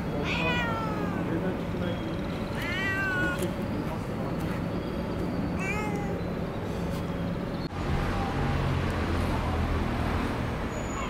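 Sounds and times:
street traffic hum: 0.0 - 11.0
cat meowing: 0.2 - 1.3, 2.5 - 3.6, 5.6 - 6.2.

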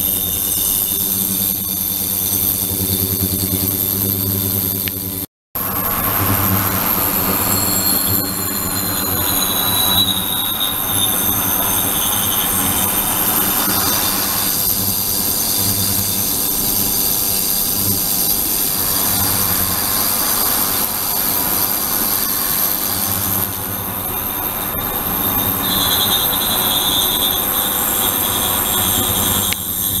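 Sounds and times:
high squealing tones: 5.7 - 14.7, 22.6 - 30.0.

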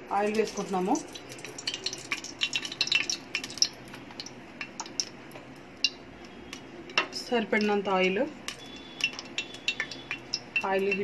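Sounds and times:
oil ticking and crackling: 0.0 - 11.0
oil pouring into pot: 0.9 - 5.2.

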